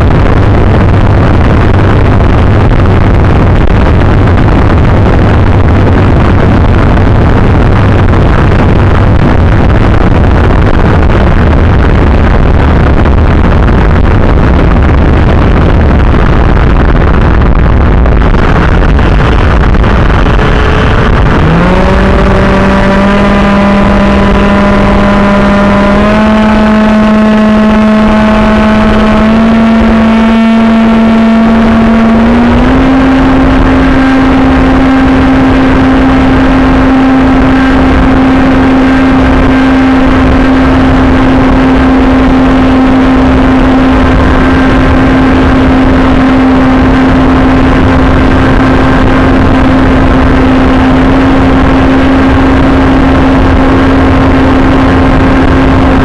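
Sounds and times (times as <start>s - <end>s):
wind rush on microphone: 0.0s - 56.0s
electric motor and propeller whine: 18.9s - 56.0s.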